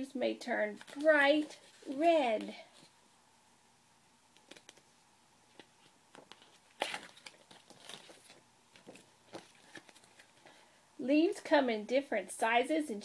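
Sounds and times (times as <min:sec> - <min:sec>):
book pages turning: 0:00.6 - 0:02.9, 0:04.4 - 0:04.9, 0:05.5 - 0:10.6.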